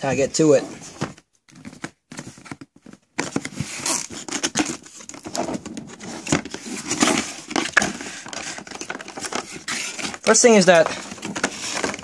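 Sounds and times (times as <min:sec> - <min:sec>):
cardboard rustling and scraping: 0:00.0 - 0:12.0
tape peeled from cardboard: 0:03.2 - 0:10.4.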